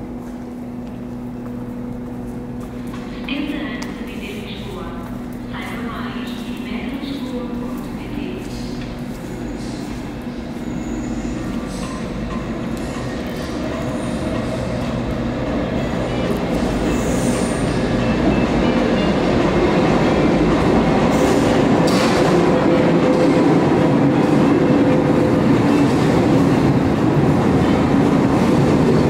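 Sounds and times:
metro train rumble and wheel noise: 0.0s - 29.0s.

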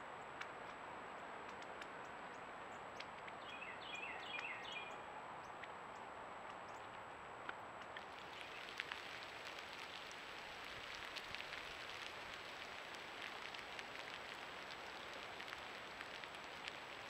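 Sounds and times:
faint ticks: 0.2s - 3.5s, 4.2s - 17.0s
microphone hiss: 8.0s - 17.0s.

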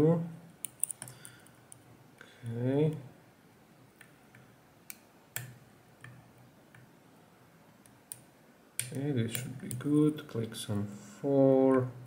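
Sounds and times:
lock pick metallic clicks: 0.6s - 1.8s.

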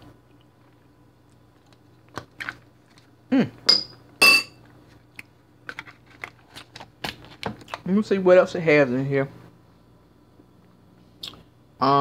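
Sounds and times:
spoon clinking against dish: 3.7s - 4.6s.

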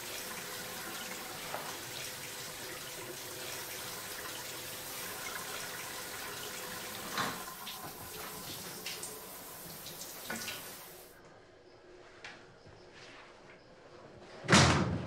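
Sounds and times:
tap water running: 0.0s - 11.2s.

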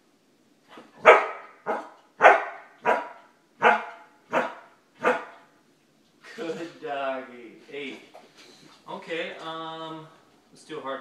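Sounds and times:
dog barking: 1.0s - 5.5s.

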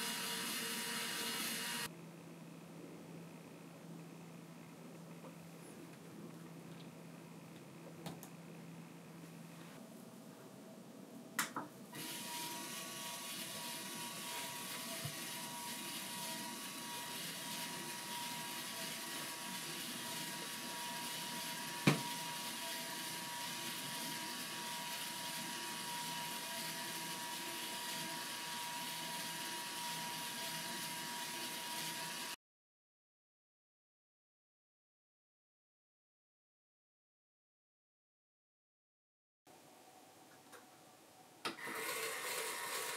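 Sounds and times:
small electric motor whining: 0.0s - 1.9s, 12.0s - 32.4s, 41.6s - 42.9s.

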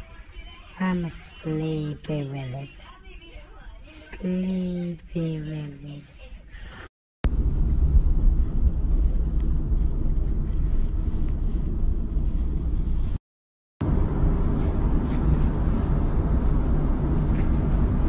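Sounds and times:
vehicle cabin rumble: 7.2s - 13.2s, 13.8s - 18.0s.

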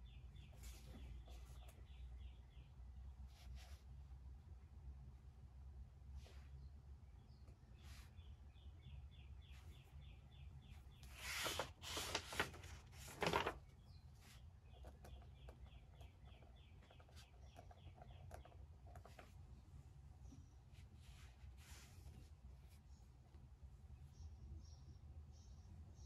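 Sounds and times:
bird chirping: 0.0s - 3.2s, 6.5s - 12.0s, 13.6s - 19.3s, 20.0s - 21.0s, 22.8s - 26.0s
paper rustling: 11.0s - 15.1s.

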